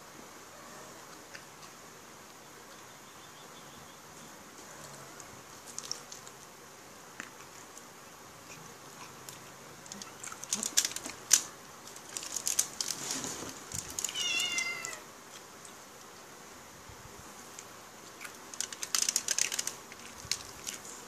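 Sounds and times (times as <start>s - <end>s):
chewing and eating noises: 0.6s - 2.9s, 4.6s - 16.3s, 17.4s - 21.0s
cat meowing: 14.1s - 15.1s.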